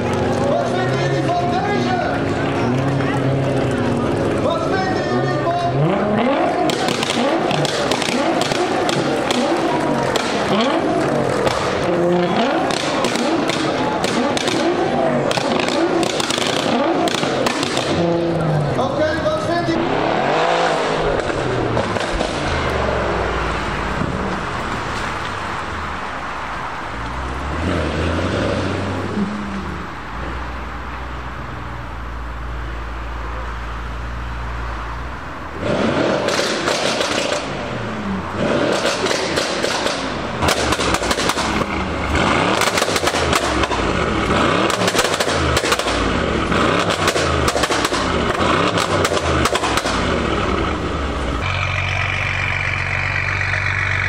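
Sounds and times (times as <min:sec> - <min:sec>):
car engine idling: 0:00.0 - 0:19.8, 0:20.7 - 0:27.7, 0:28.9 - 0:54.0
exhaust crackling pops: 0:06.6 - 0:18.1, 0:21.0 - 0:22.8, 0:36.1 - 0:37.6, 0:38.5 - 0:54.0
engine revving in quick blips: 0:35.5 - 0:54.0.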